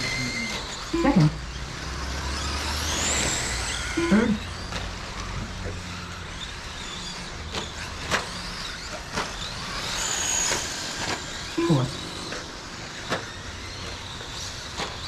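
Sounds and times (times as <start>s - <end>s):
electric motor whine: 0.0s - 15.0s
low falling tone: 10.1s - 14.3s.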